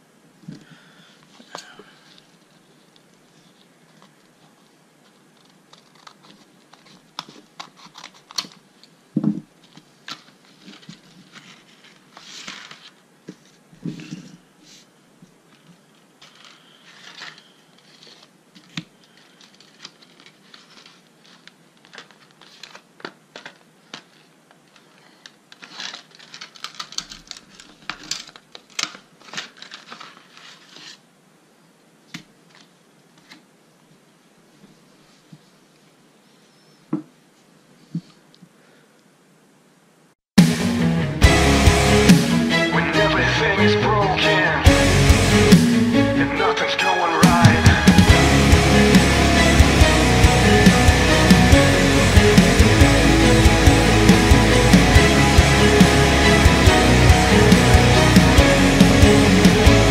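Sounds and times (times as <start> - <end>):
paper and wrapping crinkling: 1.4 - 9.0, 9.6 - 14.8, 15.4 - 31.1.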